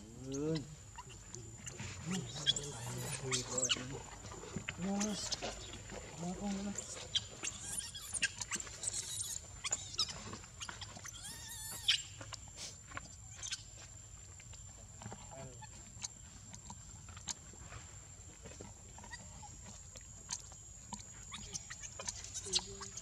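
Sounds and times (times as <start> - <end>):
monkey squealing: 0.3 - 4.2, 4.9 - 5.4, 6.7 - 12.2, 21.2 - 23.0.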